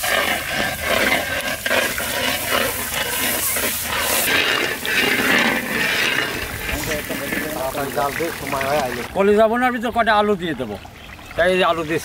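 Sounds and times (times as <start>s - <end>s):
water poured into hot oil: 0.0s - 9.1s.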